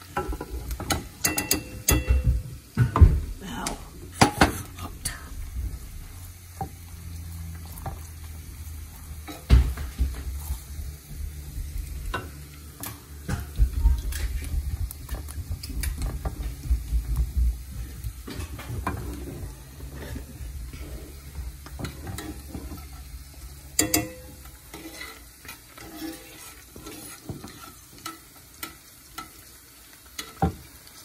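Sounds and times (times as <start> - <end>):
spoon scraping a pan: 0.0 - 2.4, 3.6 - 31.0
juices sizzling: 0.0 - 31.0.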